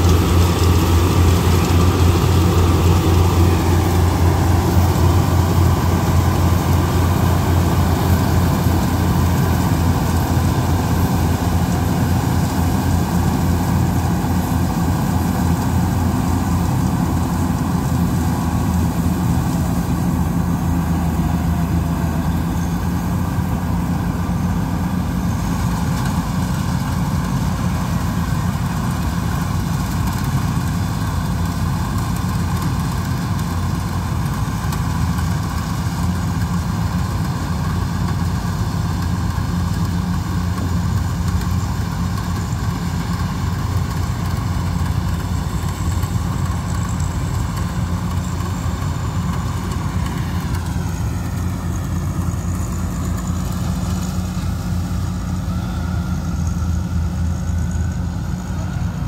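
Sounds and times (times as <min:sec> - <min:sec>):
combine harvester diesel engine: 0:00.0 - 0:59.0.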